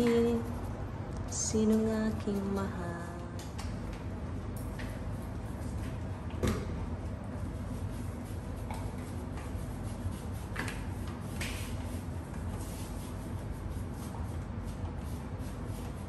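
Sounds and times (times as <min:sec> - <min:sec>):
steady low hum: 0:00.0 - 0:16.0
cloth wiping scooter deck: 0:07.3 - 0:16.0.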